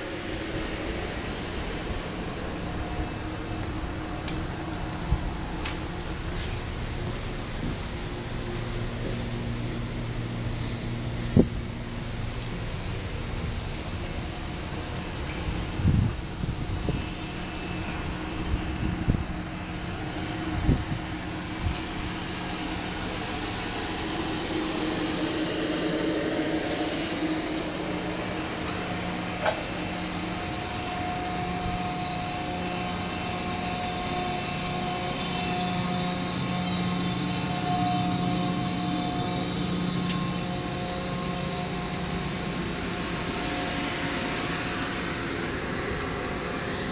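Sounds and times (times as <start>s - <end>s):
locomotive cooling blowers whirring: 0.0s - 46.9s
train ventilation fans humming: 0.0s - 46.9s.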